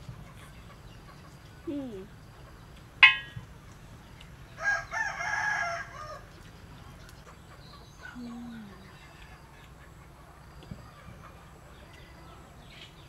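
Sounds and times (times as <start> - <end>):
rooster crowing: 4.6 - 6.3.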